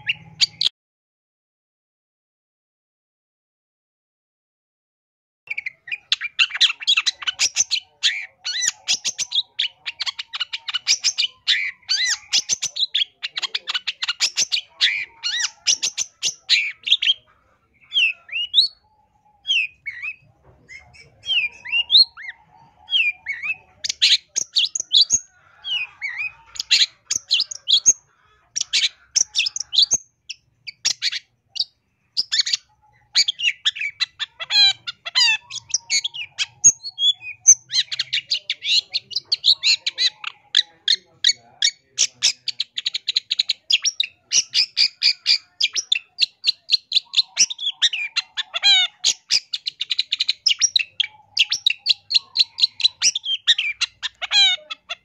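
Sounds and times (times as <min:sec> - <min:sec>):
shrike singing: 0:05.5 - 0:55.0.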